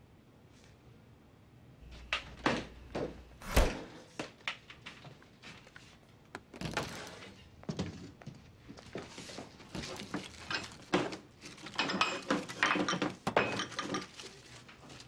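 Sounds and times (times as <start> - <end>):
plastic wrap rustling: 8.8 - 11.8.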